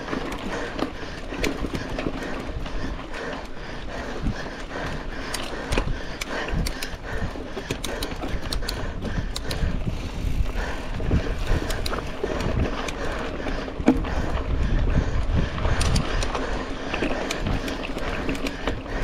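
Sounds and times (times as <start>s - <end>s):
bike rattling and knocking: 0.0s - 19.0s
tyres rolling on dirt and gravel: 0.0s - 19.0s
wind on microphone: 8.2s - 19.0s.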